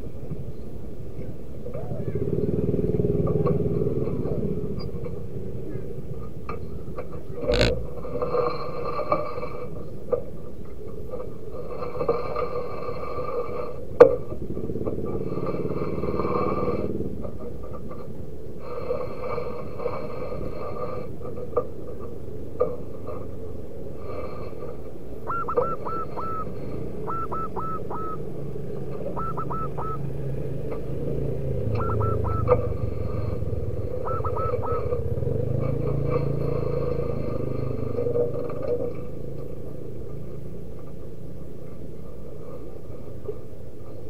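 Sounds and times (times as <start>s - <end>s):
dove cooing: 1.7s - 6.0s, 7.4s - 7.9s, 25.2s - 36.6s.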